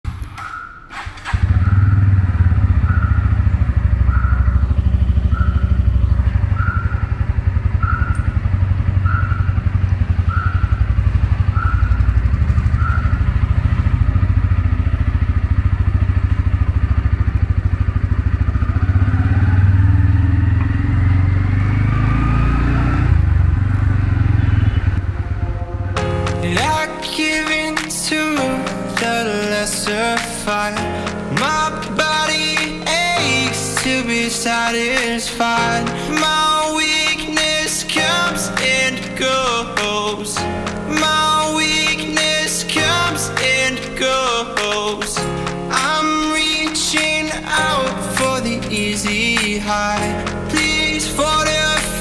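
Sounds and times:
motorcycle engine running: 1.0s - 52.0s
rising whine: 18.4s - 26.7s.

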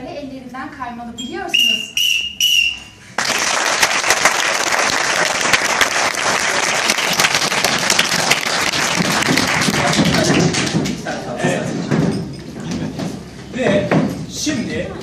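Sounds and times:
whistle blasts: 1.2s - 3.1s
audience applauding: 3.2s - 11.3s.

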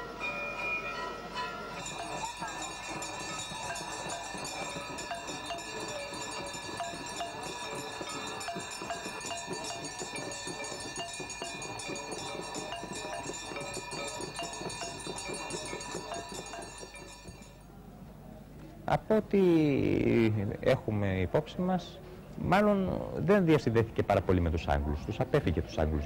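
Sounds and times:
many bells ringing: 0.0s - 17.7s.

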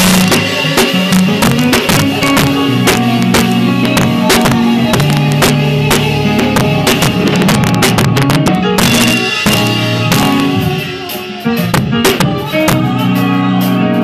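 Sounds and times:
sharp drum hits: 0.0s - 12.9s
electronic keyboard playing: 0.0s - 14.0s.

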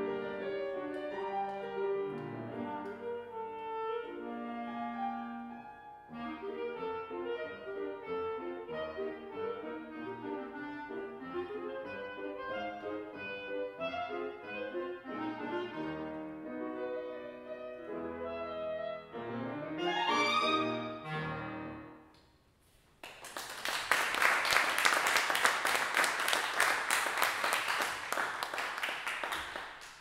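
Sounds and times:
clarinet: 0.0s - 22.1s
piano: 0.0s - 22.1s
audience applause: 23.0s - 30.0s.

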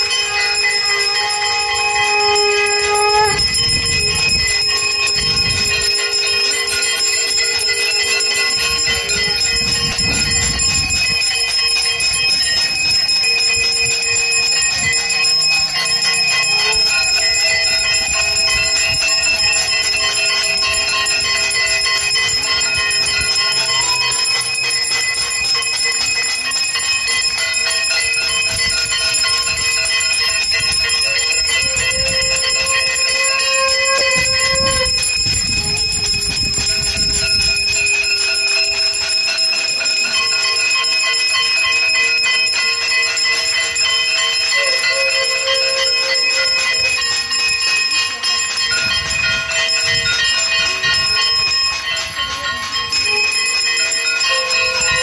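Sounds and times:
conch shell note: 0.0s - 11.0s, 13.3s - 24.7s, 29.2s - 39.0s, 44.3s - 47.2s, 54.2s - 55.0s
hand bells ringing: 0.0s - 55.0s.

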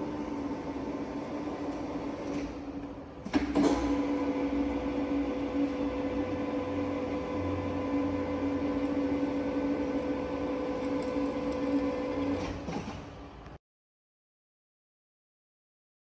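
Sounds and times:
milling machine motor whine: 0.0s - 3.1s, 3.8s - 13.5s.

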